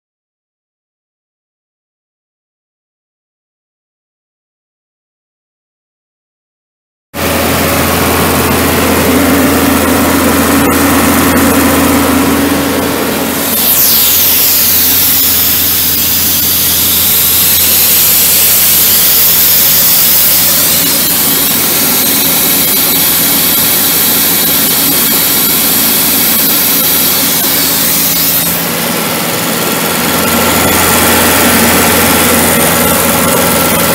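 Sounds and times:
diesel engine running: 7.2s - 33.9s
compressed air hissing: 13.2s - 28.8s.

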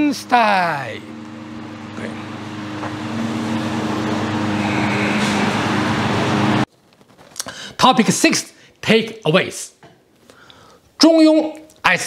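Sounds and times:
road noise: 0.0s - 6.7s
vehicle engine hum: 0.0s - 6.7s.

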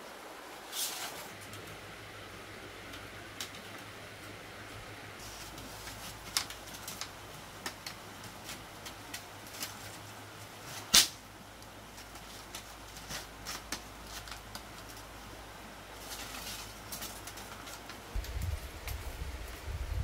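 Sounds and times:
bamboo strips clicking and rattling: 2.8s - 4.4s, 5.2s - 15.3s, 15.9s - 19.7s.

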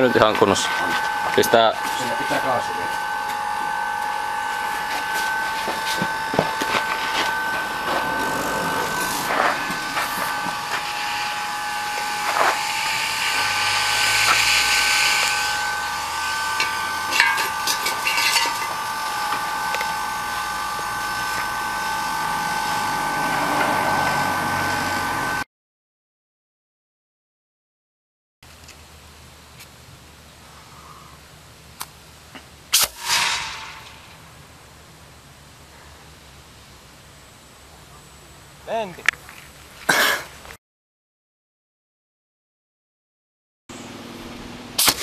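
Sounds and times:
gas hissing with high whistle: 0.0s - 25.4s, 32.7s - 34.5s, 44.7s - 45.0s.

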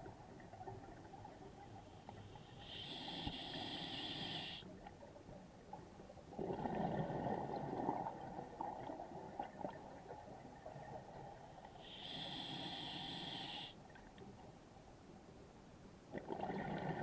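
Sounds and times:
hissing regulator inhale: 2.4s - 4.7s, 11.8s - 13.8s
exhaled bubbles burbling: 6.4s - 8.9s, 16.1s - 17.0s.

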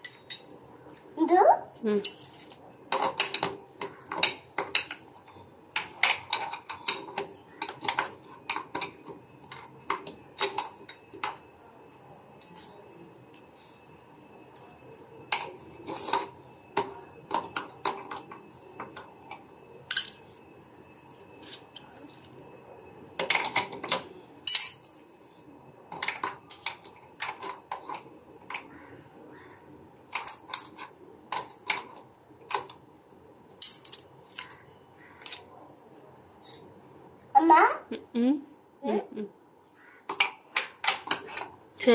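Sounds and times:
metal tools clinking and clattering: 0.0s - 0.7s, 1.8s - 3.5s, 12.3s - 13.0s, 17.3s - 20.4s, 23.2s - 25.2s, 30.2s - 31.6s, 33.6s - 35.5s, 36.4s - 36.8s.

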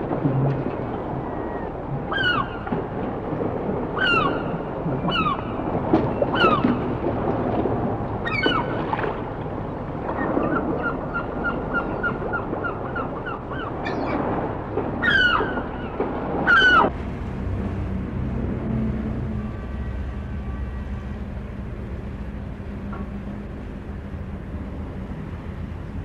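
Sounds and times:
birds calling: 1.2s - 2.7s, 4.0s - 6.8s, 8.2s - 8.8s, 10.2s - 14.3s, 15.0s - 16.9s
steady rushing noise: 15.9s - 26.0s
low hum: 16.6s - 26.0s.

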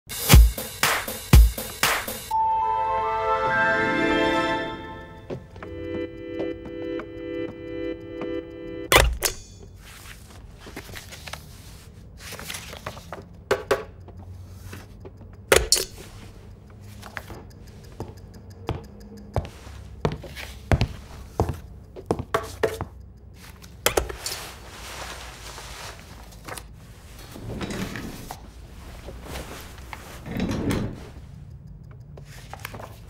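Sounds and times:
clicks and knocks of office objects: 12.2s - 16.3s, 32.2s - 33.0s.

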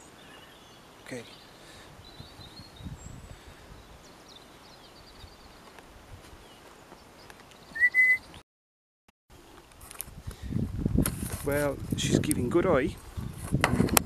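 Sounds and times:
faint bird chirps: 6.4s - 8.4s
loud rising whistle: 7.8s - 8.3s.

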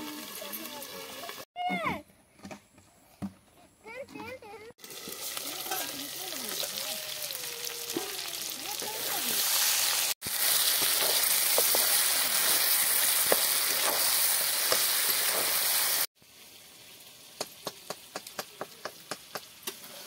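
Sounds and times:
food sizzling in oil: 0.0s - 1.5s, 4.8s - 20.0s
ladle scraping wok: 8.4s - 16.1s.

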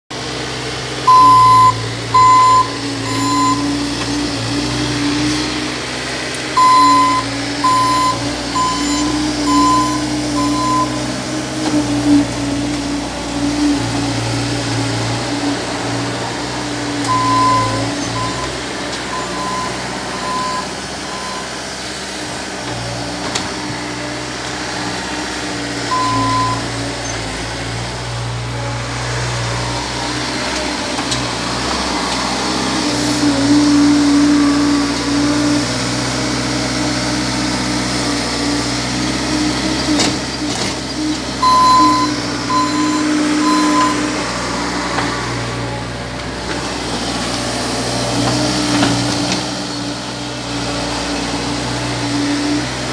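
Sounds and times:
diesel engine running: 0.1s - 52.9s
reversing alarm beeps: 1.1s - 3.8s, 6.6s - 11.0s, 17.1s - 18.5s, 19.1s - 21.5s, 25.9s - 26.6s, 41.4s - 44.1s.

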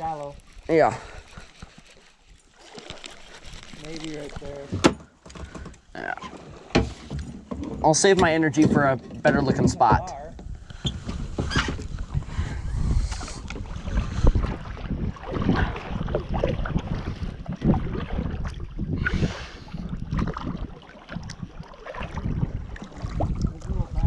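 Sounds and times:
paddle splashing in water: 0.4s - 24.0s
paddle knocking against kayak: 4.7s - 12.2s
wind rumbling on microphone: 6.8s - 24.0s.

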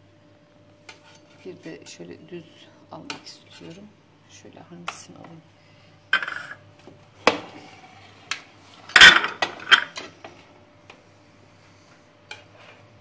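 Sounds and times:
utensil scraping metal tray: 0.9s - 2.2s, 3.0s - 3.9s.

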